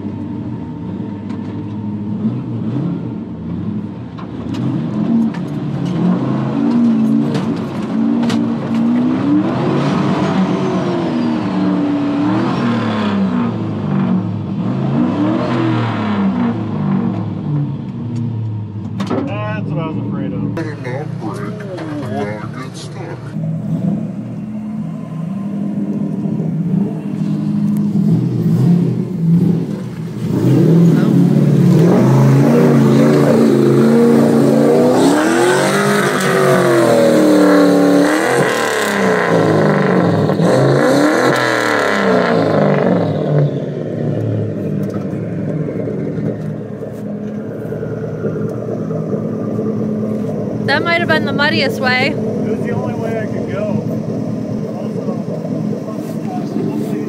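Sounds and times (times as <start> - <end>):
truck engine revving hard: 2.0 - 17.8, 22.1 - 57.0.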